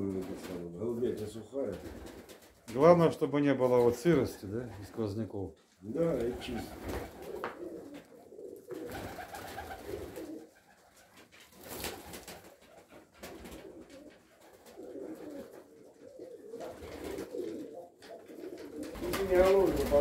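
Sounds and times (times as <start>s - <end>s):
pigeons cooing: 6.0s - 11.2s, 11.8s - 20.0s.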